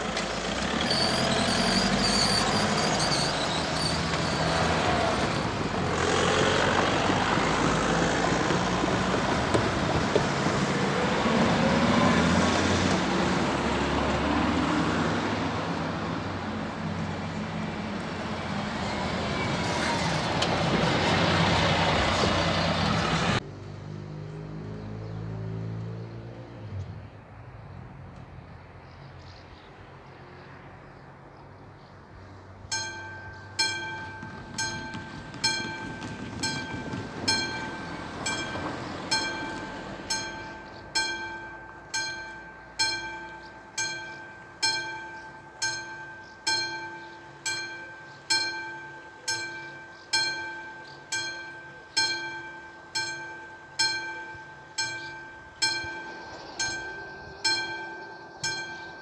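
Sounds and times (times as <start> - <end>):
level crossing bell ringing: 32.7 - 59.0.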